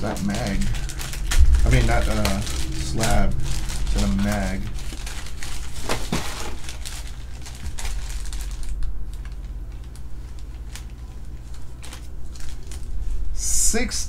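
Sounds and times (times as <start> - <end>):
plastic bag crinkling: 3.6 - 13.0.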